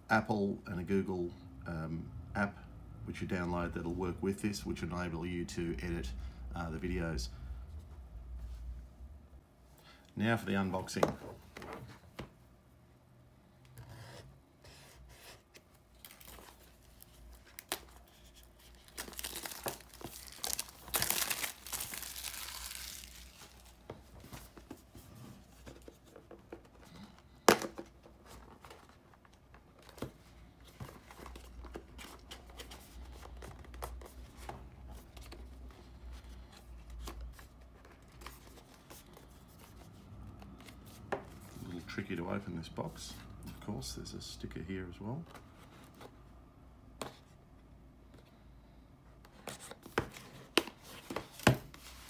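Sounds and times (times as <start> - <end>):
plastic wrapping crinkling: 15.9 - 24.5.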